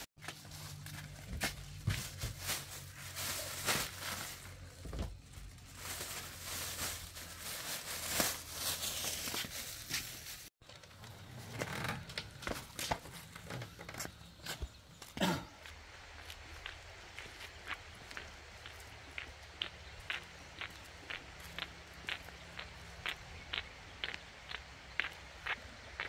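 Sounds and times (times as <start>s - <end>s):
plastic bag crinkling: 2.1s - 10.5s.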